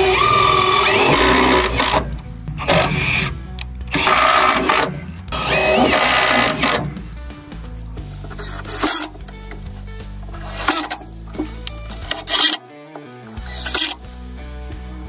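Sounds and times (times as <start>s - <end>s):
cordless drill driving screws: 0.0s - 3.3s, 3.9s - 6.9s, 8.3s - 9.4s, 10.3s - 12.7s, 13.4s - 14.1s
upbeat rock music: 0.2s - 15.0s.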